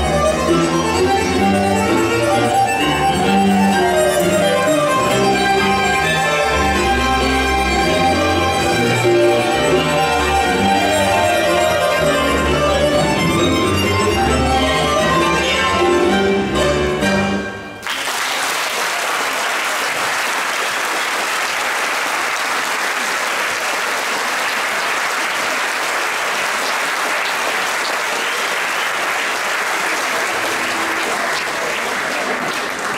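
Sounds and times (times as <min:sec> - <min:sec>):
audience applauding: 0:09.8 - 0:13.2, 0:17.8 - 0:32.9.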